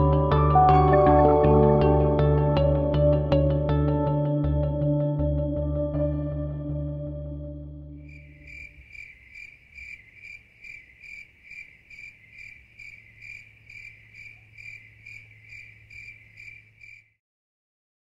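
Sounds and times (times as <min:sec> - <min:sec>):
cricket chirping: 0:08.0 - 0:17.2.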